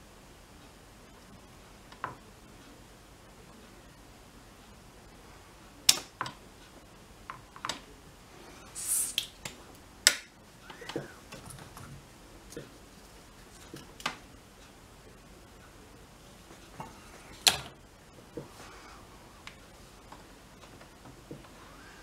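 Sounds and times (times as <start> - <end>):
brief high hiss: 8.7 - 9.3.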